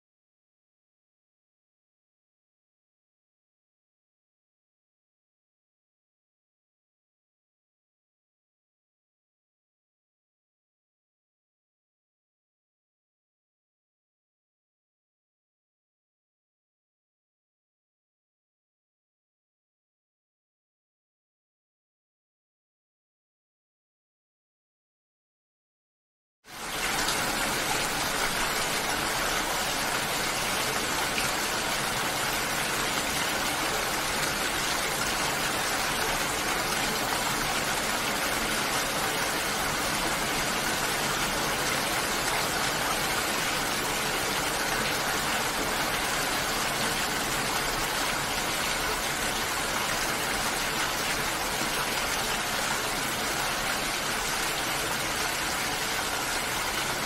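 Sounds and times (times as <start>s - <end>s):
steady rain: 26.5s - 57.0s.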